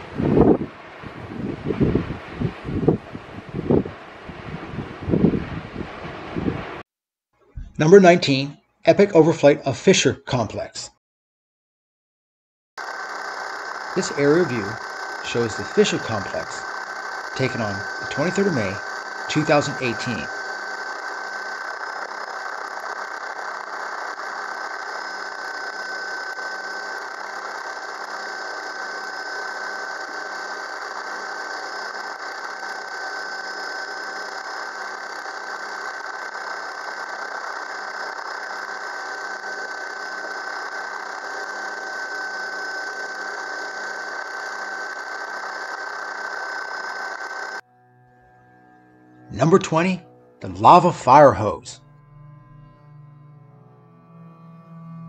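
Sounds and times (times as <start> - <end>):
helicopter high whine: 0.0 - 6.8, 7.6 - 8.3, 12.8 - 55.0
helicopter engine and rotor drone: 12.8 - 47.6.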